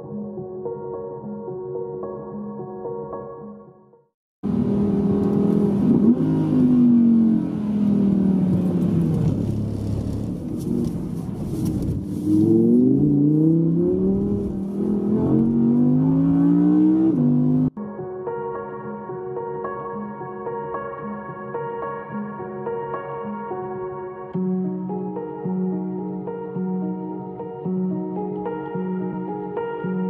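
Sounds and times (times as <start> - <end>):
sports car engine revving: 4.5 - 17.7.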